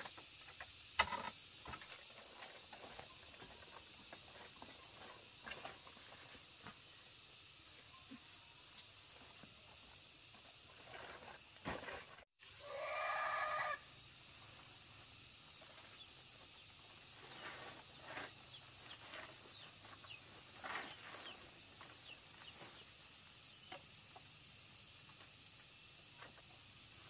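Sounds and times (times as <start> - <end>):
rooster crowing: 12.6 - 13.9.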